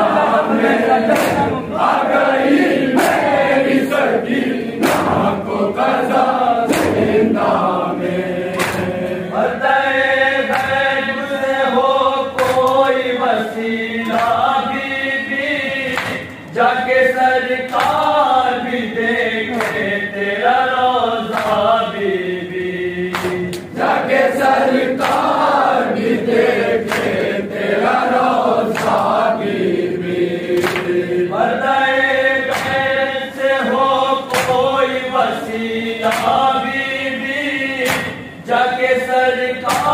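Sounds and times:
men chanting a lament: 0.0s - 39.9s
chest-beating slaps: 0.6s - 1.9s, 2.5s - 3.5s, 4.3s - 6.0s, 6.6s - 7.5s, 8.5s - 9.2s, 10.4s - 10.9s, 12.4s - 12.8s, 15.9s - 16.4s, 21.3s - 21.7s, 23.1s - 23.7s, 25.0s - 25.5s, 26.8s - 27.4s, 28.6s - 29.2s, 30.5s - 31.1s, 32.5s - 33.0s, 34.3s - 34.8s, 36.0s - 36.8s, 37.8s - 38.5s, 39.6s - 39.9s.

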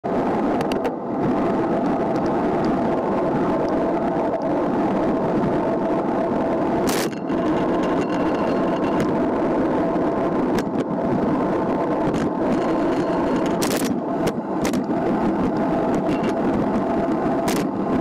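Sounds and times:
wind rushing over microphone: 0.0s - 18.0s
bike tyres on asphalt: 0.1s - 18.0s.

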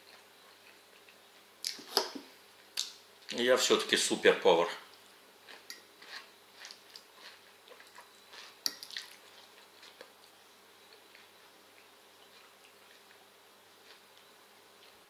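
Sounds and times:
wet chewing: 4.9s - 15.0s.

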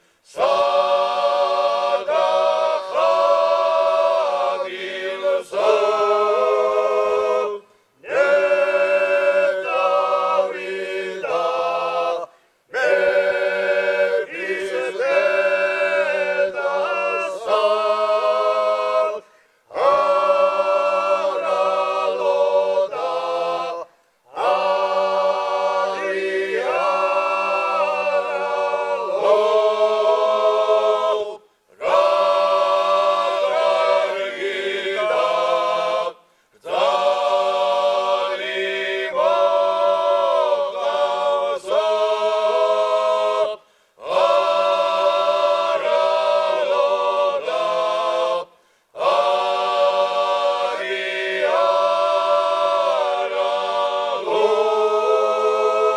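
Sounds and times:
male choir singing polyphony: 0.0s - 55.9s.

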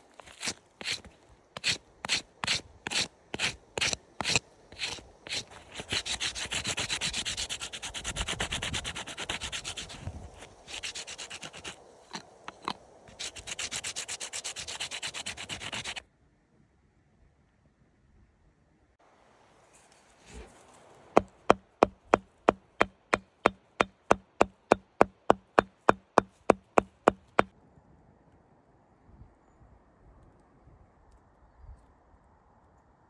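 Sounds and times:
knife scraping tree bark: 0.0s - 16.0s, 21.2s - 27.5s.

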